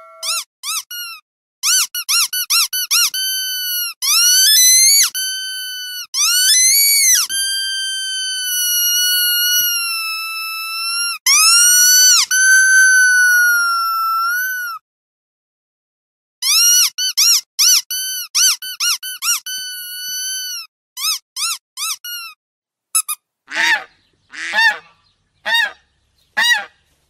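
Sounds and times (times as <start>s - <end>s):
rubber dog toy squeaking: 0.0s - 14.8s, 16.4s - 23.2s.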